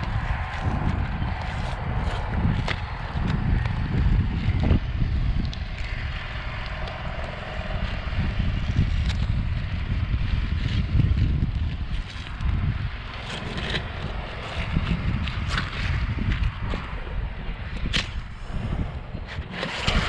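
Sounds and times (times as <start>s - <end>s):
wind buffeting microphone: 0.0s - 20.0s
shingles scraping and clicking: 13.2s - 17.0s, 19.2s - 20.0s.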